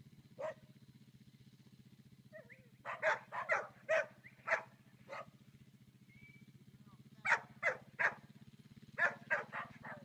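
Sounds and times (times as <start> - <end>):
steady low hum: 0.0 - 10.0
dog barking sharply: 2.9 - 5.3, 7.2 - 8.2, 9.0 - 10.0.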